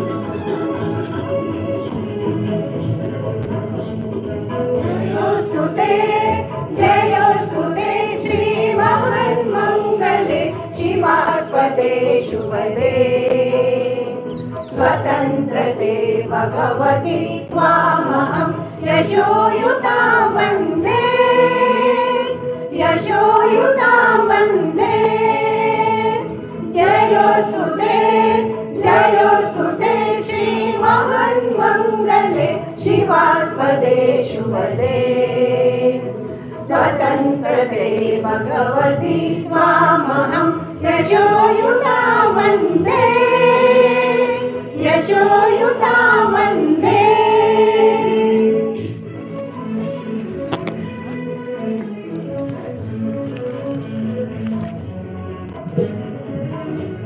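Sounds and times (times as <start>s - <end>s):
group singing in chorus: 3.4s - 49.1s.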